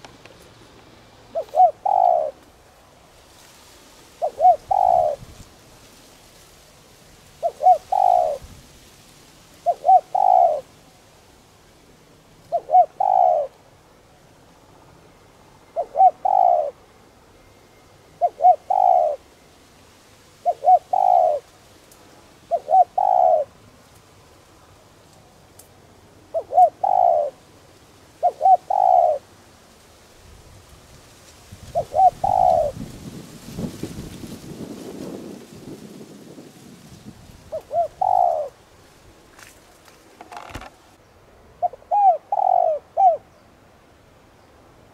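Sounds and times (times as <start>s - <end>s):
dove cooing: 1.3s - 2.4s, 4.2s - 5.3s, 7.4s - 8.5s, 9.6s - 10.7s, 12.4s - 13.6s, 15.7s - 16.8s, 18.2s - 19.3s, 20.4s - 21.5s, 22.5s - 23.6s, 26.3s - 27.4s, 28.2s - 29.3s, 31.6s - 32.9s, 37.4s - 38.6s, 41.6s - 43.3s.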